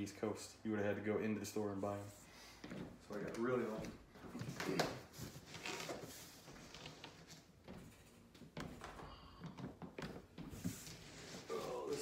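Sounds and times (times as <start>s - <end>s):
footsteps on wooden floor: 2.6s - 12.0s.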